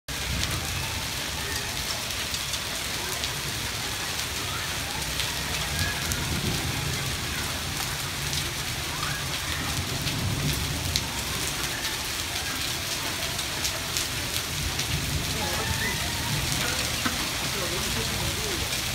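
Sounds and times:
heavy rain on pavement: 0.1 - 18.9
hailstones striking: 9.9 - 18.9.

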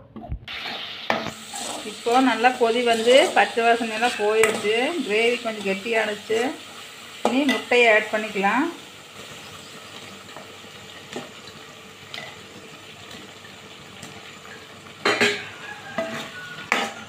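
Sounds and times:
gravy sizzling in a pan: 0.4 - 17.0
metal spoon scraping a pan: 0.5 - 8.3, 14.0 - 17.0.

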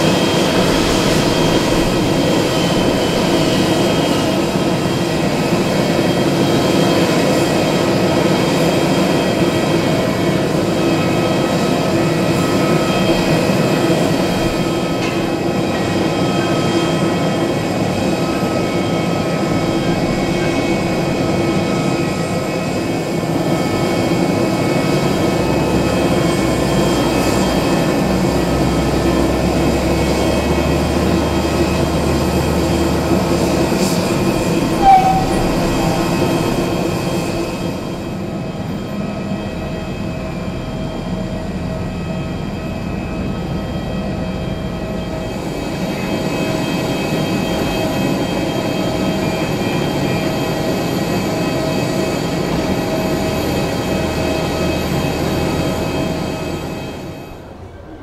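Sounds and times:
jet engines droning: 0.0 - 58.0
short sharp chirp: 34.8 - 36.1.

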